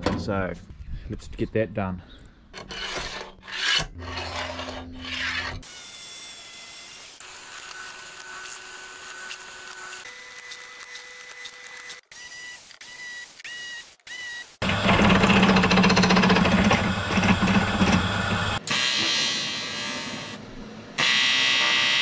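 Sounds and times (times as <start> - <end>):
rough rasping strokes: 2.5 - 5.7
drill press whirring: 14.1 - 20.4.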